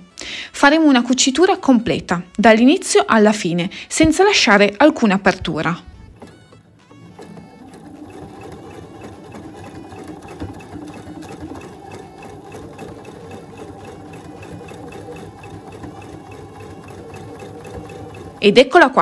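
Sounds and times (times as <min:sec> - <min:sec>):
sewing machine stitching: 0:04.0 - 0:19.0.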